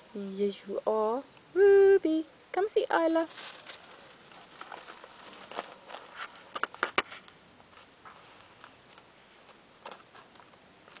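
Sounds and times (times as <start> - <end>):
puppy crunching on gravel: 3.2 - 7.3.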